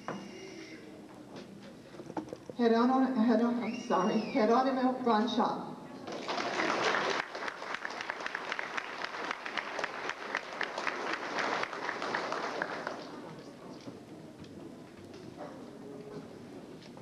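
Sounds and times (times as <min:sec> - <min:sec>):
audience applauding: 0:06.1 - 0:13.4.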